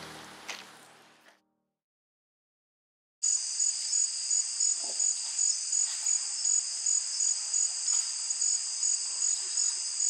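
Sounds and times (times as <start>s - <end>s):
insect pulsing call: 3.2s - 10.0s
insects trilling: 3.2s - 10.0s.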